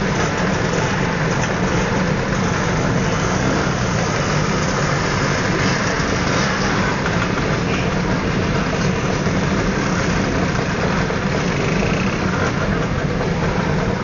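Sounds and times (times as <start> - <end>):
scooter engines idling: 0.0 - 14.0.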